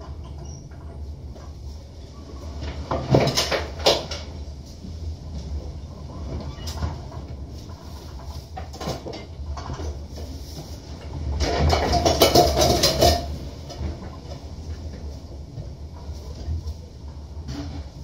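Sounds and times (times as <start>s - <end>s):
steady low hum: 0.0s - 18.0s
loose items knocking and rattling: 11.4s - 14.0s.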